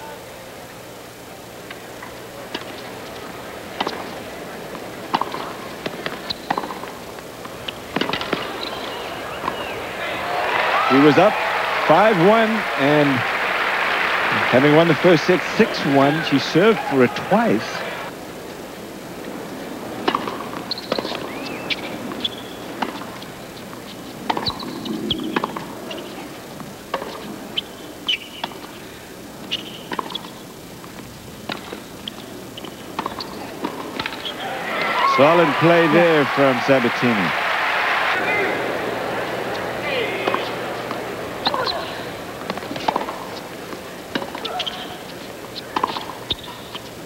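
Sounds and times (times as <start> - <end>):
tennis ball bouncing: 1.7 - 12.4, 20.0 - 28.8, 29.4 - 36.2, 38.4 - 47.0
shoes squeaking on court: 2.0 - 13.2, 20.1 - 28.8, 29.4 - 36.6, 38.3 - 47.0
tennis racket hitting ball: 2.5 - 9.7, 20.0 - 23.2, 23.8 - 24.7, 25.3 - 26.2, 26.9 - 27.3, 29.8 - 30.3, 32.6 - 35.4, 40.2 - 41.8, 42.4 - 46.8.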